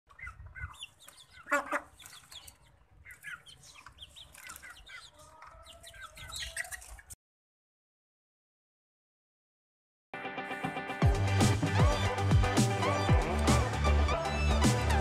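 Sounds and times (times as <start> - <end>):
hens clucking and chirping: 0.1 - 7.2.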